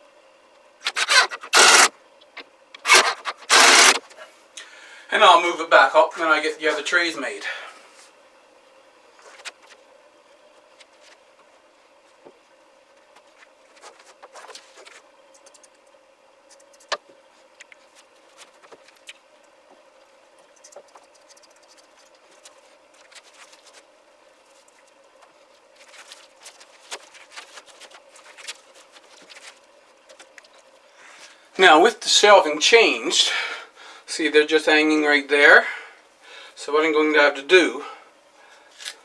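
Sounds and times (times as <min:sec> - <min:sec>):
faint steady hum: 0:00.0 - 0:39.0
plastic rustling and crinkling: 0:13.0 - 0:15.8, 0:20.6 - 0:30.9.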